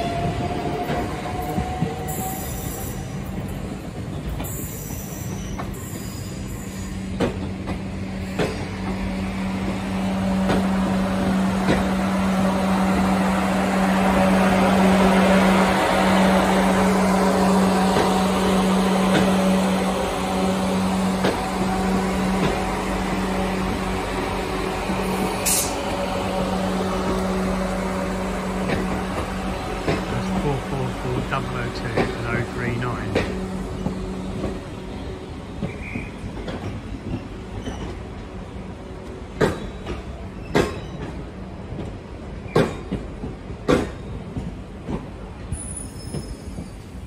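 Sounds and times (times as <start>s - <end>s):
train electric hum: 0.0s - 47.0s
train rolling noise: 0.0s - 47.0s
train motor whine: 7.9s - 36.3s.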